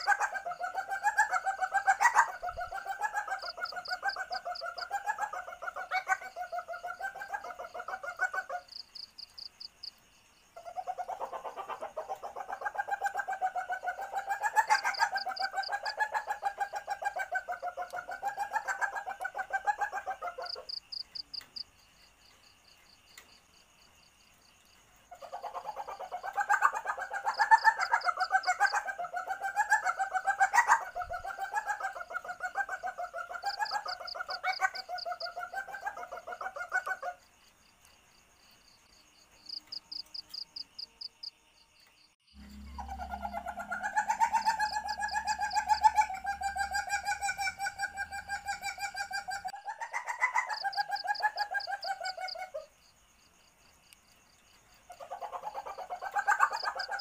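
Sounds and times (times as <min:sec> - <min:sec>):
civet calling in pulsing series: 0:00.0 - 0:09.4, 0:10.6 - 0:21.4, 0:25.1 - 0:37.2, 0:42.4 - 0:52.7, 0:54.9 - 0:57.0
short high trills: 0:42.4 - 0:46.8.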